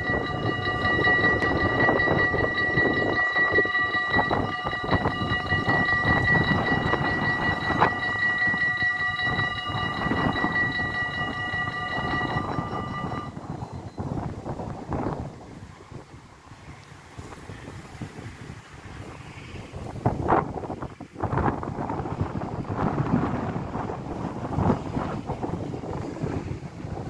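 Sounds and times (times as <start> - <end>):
level crossing bells ringing: 0.0 - 13.4
wind rumble on microphone: 0.0 - 27.0.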